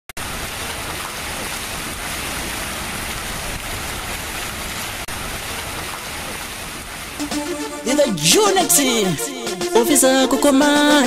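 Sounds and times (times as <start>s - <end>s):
water splashing in fountain: 0.2s - 7.9s.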